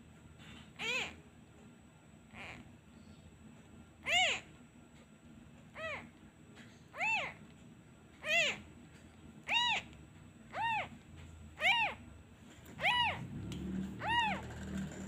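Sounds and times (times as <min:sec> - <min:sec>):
kitten meowing: 0:00.8 - 0:01.2, 0:04.0 - 0:04.5, 0:05.8 - 0:06.1, 0:07.0 - 0:07.4, 0:08.2 - 0:08.6, 0:09.4 - 0:11.0, 0:11.6 - 0:12.0, 0:12.8 - 0:13.2, 0:14.0 - 0:14.5.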